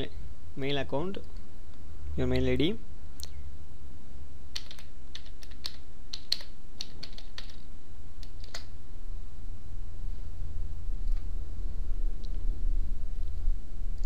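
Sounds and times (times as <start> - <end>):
steady low hum: 0.0 - 14.0
typing on keyboard: 4.5 - 8.7.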